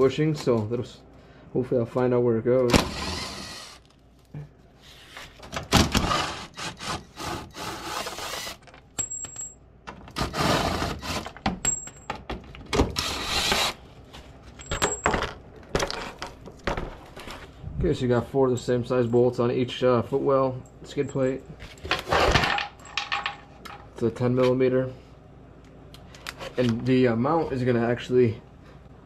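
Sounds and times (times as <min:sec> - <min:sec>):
hand tools scraping plastic: 0:04.9 - 0:08.8.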